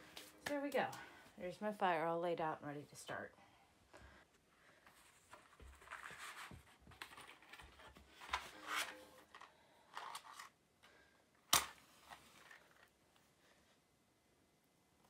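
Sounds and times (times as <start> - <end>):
matchbox rustling and clicking: 8.2 - 10.6.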